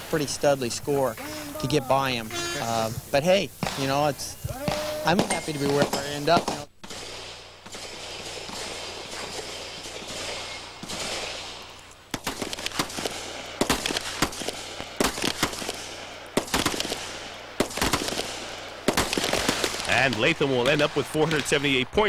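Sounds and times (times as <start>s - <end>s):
pistol shots: 3.6s - 21.6s.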